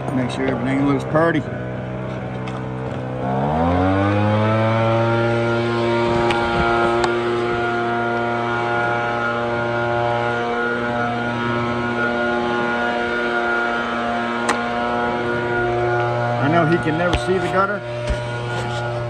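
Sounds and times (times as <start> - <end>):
small gasoline engine running: 0.0 - 19.0.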